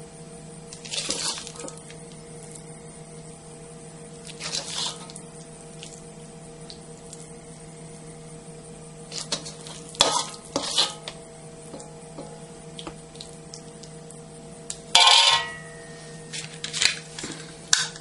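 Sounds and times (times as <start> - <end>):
metal spoon scraping a pan: 9.2 - 11.1, 15.0 - 15.9.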